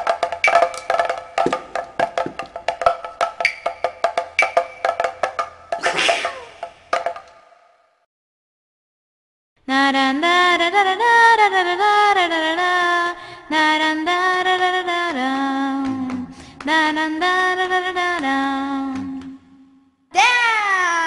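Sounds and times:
high voice singing wordless melody: 9.7 - 19.5, 20.1 - 21.0.

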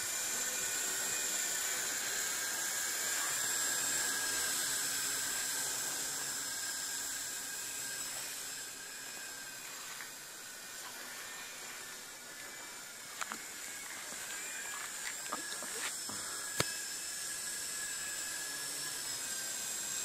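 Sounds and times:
helicopter whine overhead: 0.0 - 20.0.

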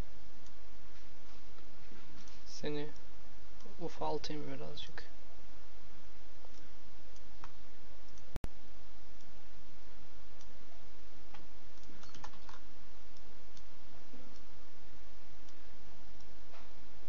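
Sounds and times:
steady background hiss: 0.0 - 17.0
computer mouse and keyboard clicks: 11.3 - 12.7.

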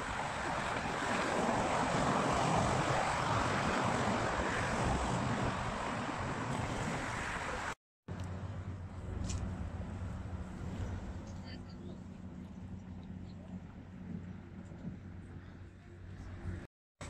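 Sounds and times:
car traffic rushing past: 0.0 - 7.8
wind on microphone: 0.0 - 7.8.

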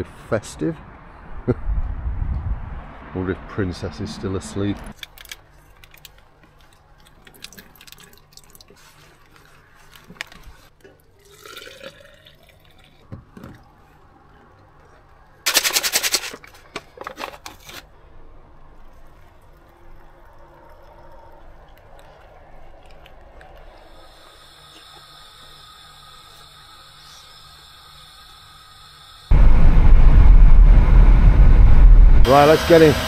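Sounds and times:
hot water pouring into cup: 11.2 - 13.1, 18.8 - 29.2.

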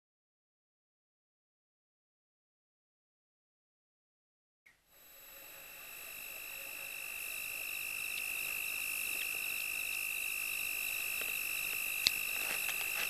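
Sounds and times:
insects trilling: 4.9 - 13.0.

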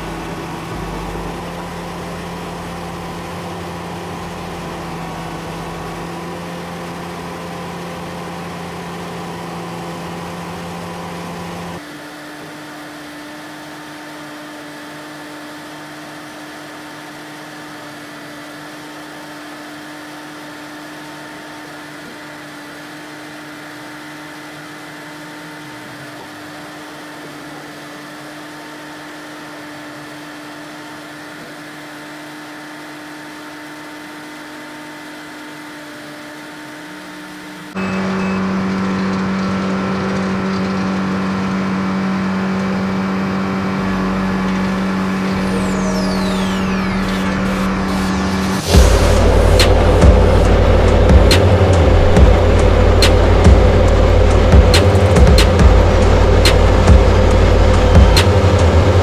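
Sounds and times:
high-pitched steady hum: 0.0 - 7.6, 42.8 - 59.0
paving machine engine running: 0.0 - 12.8, 36.6 - 59.0.

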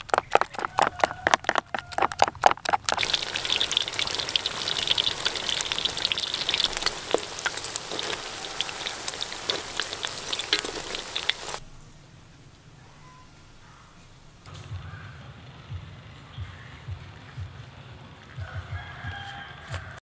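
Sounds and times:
spoon stirring thick batter: 0.0 - 11.6
deep-frying sizzle and crackle: 2.6 - 11.6.

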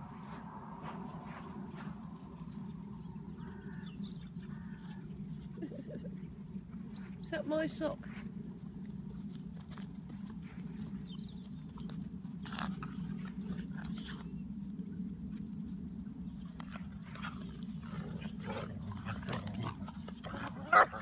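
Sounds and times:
puppies growling in play: 16.6 - 21.0.

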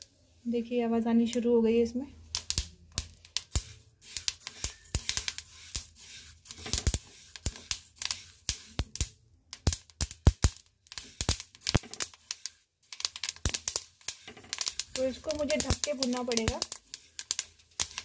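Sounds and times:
seeds crackling and popping in pan: 0.0 - 18.0
spatula scraping pan: 3.5 - 8.7.

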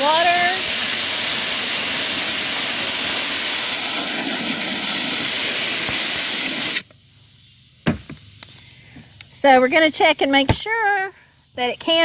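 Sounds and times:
hose nozzle spraying water: 0.0 - 6.9.

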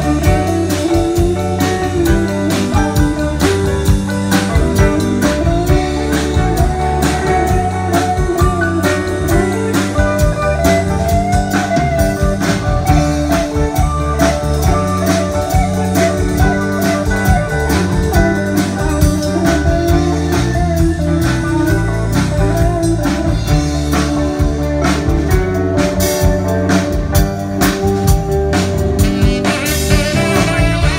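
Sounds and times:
drum kit beat: 0.0 - 30.9
guitar: 0.0 - 30.9
live band playing: 0.0 - 30.9.

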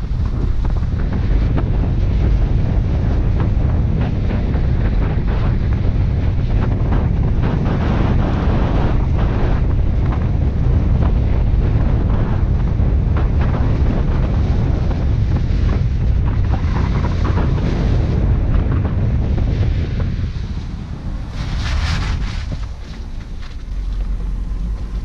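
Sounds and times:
low road rumble: 0.0 - 25.0
wind buffeting microphone: 0.0 - 25.0
knocks and clicks from road: 21.3 - 25.0.

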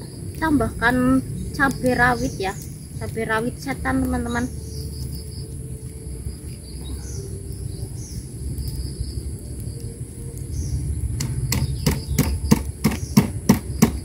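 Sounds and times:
insects chirring: 0.0 - 14.0
stone pestle pounding in mortar: 11.2 - 14.0.

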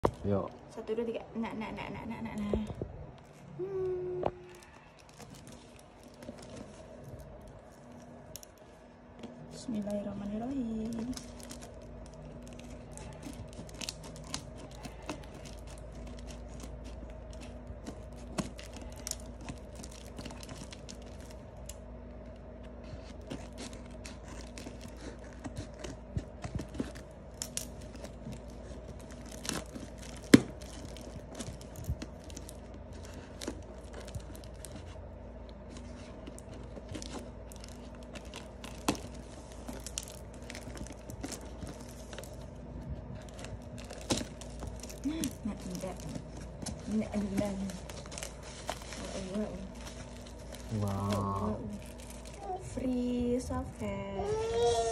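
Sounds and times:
plastic wrapping crinkling: 0.0 - 54.9.

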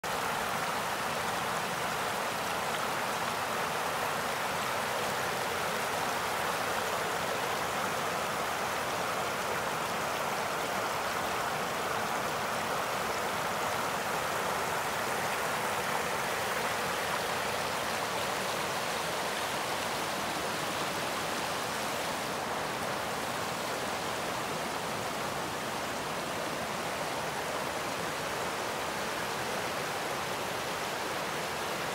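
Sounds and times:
river water rushing over rocks: 0.0 - 31.9.

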